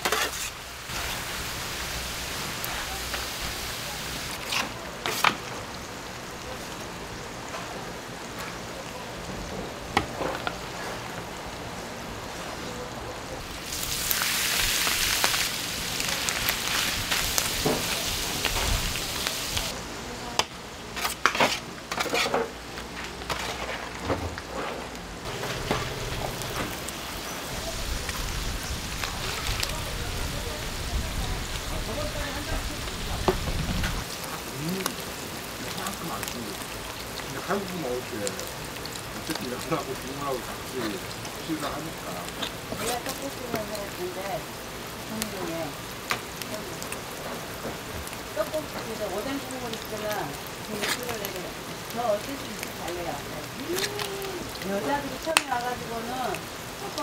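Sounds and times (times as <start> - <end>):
utensils scraping metal: 0.0 - 0.6, 21.0 - 22.5
meat sizzling on a griddle: 0.0 - 7.3, 13.4 - 19.8, 25.2 - 57.0.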